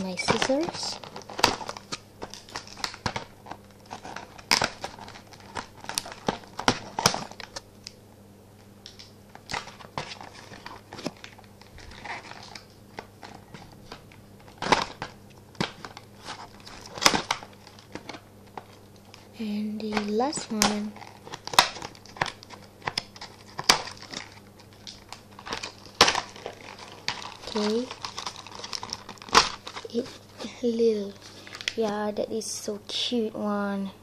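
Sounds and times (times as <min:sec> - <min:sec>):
cardboard crinkling: 0:00.0 - 0:07.7, 0:08.9 - 0:32.0.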